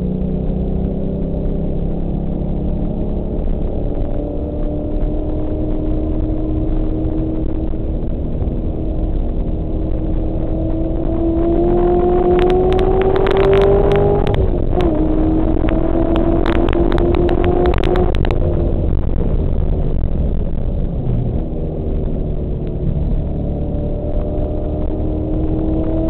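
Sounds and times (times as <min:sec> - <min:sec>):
car engine accelerating: 0:00.0 - 0:26.0.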